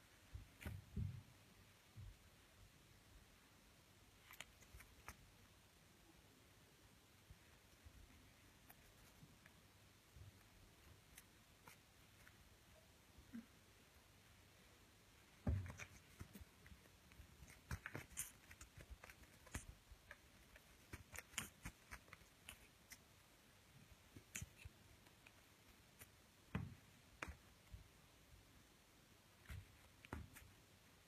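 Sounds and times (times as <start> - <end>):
paws tapping and scratching: 15.4 - 23.0.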